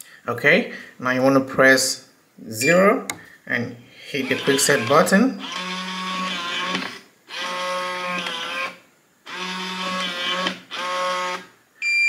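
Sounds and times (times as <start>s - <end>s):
electronic beep: 2.6s - 2.9s.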